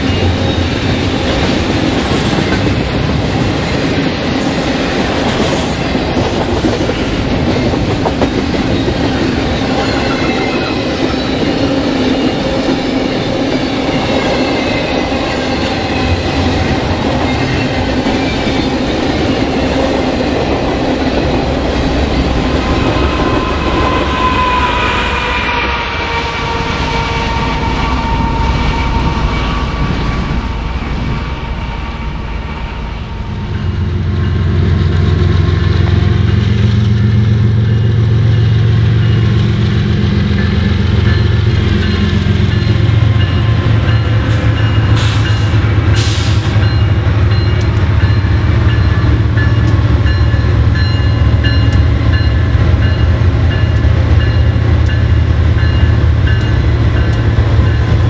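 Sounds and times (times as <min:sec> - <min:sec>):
diesel locomotive engine rumble: 0:00.0 - 0:58.0
train horn chord: 0:22.5 - 0:34.7.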